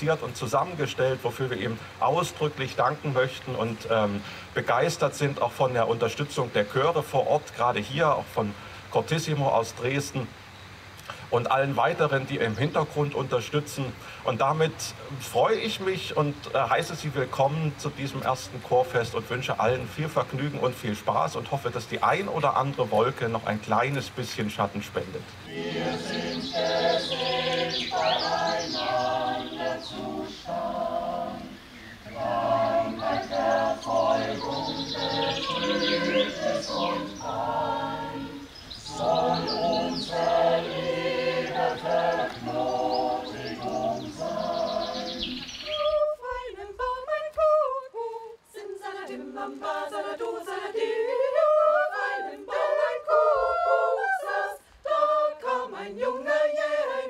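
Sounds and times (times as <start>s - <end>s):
choir singing a cappella: 25.4s - 57.0s.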